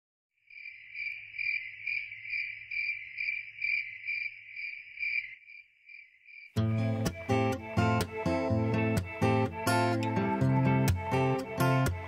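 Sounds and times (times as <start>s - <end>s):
cricket chirping: 0.4s - 6.6s.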